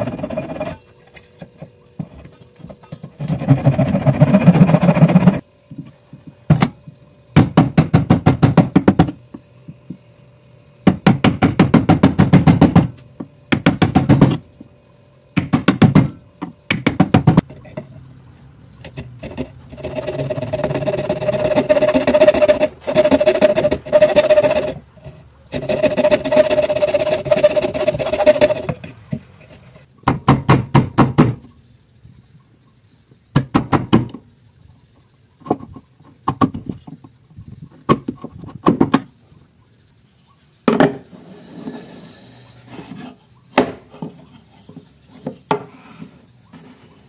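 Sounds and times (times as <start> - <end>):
hand saw cutting wood: 0.0 - 0.8, 3.2 - 5.4, 18.9 - 24.8, 25.5 - 29.6.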